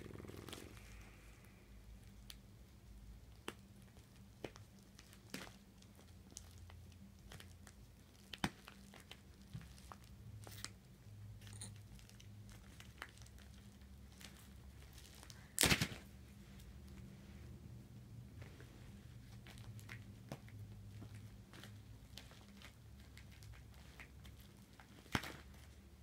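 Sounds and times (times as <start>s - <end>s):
packaging crinkling and tearing: 12.0s - 16.1s.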